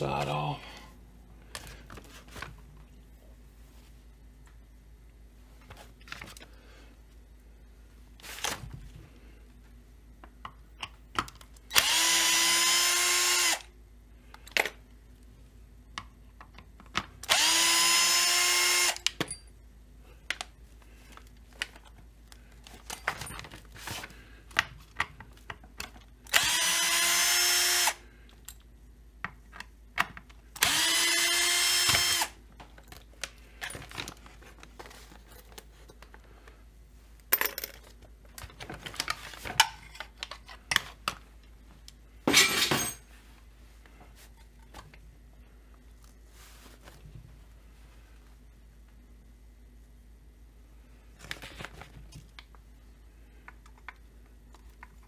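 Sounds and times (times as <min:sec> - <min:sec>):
cordless drill whining: 0:11.7 - 0:13.7, 0:17.2 - 0:19.0, 0:26.3 - 0:28.0, 0:30.6 - 0:32.4.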